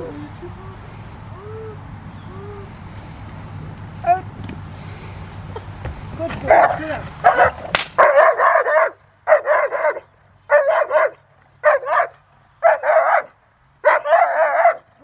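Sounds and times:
large dog barking: 6.3 - 15.0.

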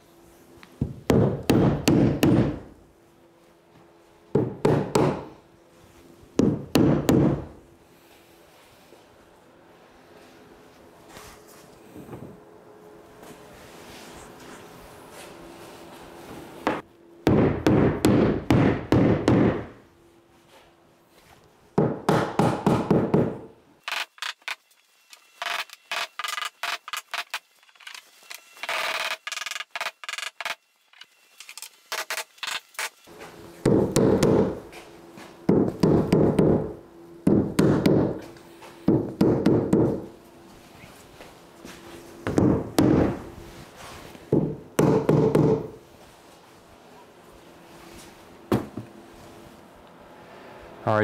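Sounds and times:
rubber mallet pounding plastic: 0.8 - 2.6, 17.3 - 19.7, 44.3 - 45.7.

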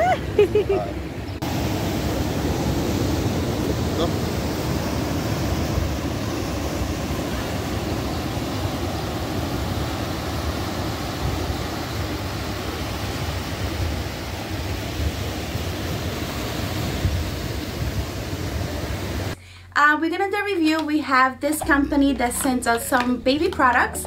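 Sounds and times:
wind on microphone: 0.0 - 19.4
small waves breaking on sand: 0.2 - 19.4.

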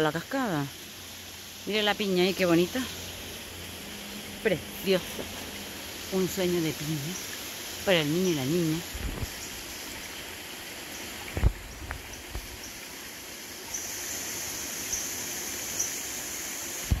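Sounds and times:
stream water rushing: 0.0 - 17.0.

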